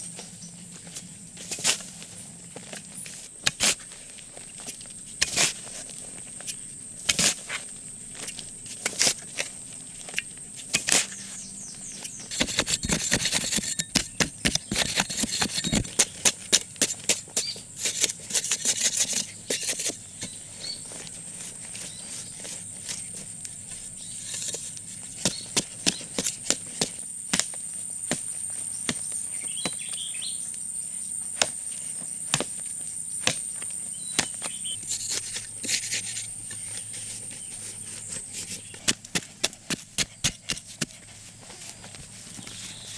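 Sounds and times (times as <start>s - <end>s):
high insect drone: 0.0s - 42.9s
digging tool chopping earth: 3.4s - 3.9s, 5.2s - 5.7s, 7.0s - 7.6s, 8.2s - 9.5s, 10.6s - 11.3s, 12.0s - 20.8s, 21.8s - 30.1s, 31.3s - 41.2s.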